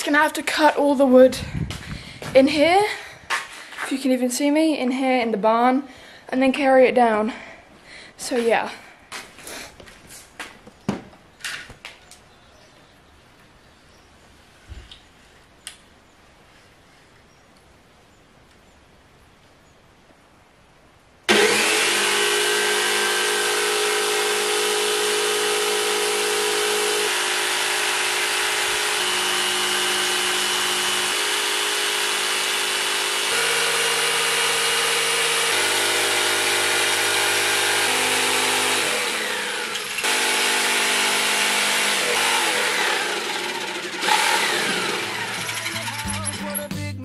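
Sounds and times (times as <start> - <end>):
jigsaw cutting wood: 21.3 - 46.4.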